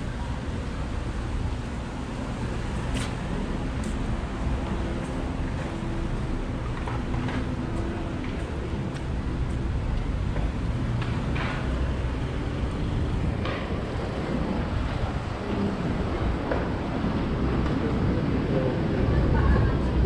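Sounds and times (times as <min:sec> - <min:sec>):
traffic rumble: 0:00.0 - 0:20.0.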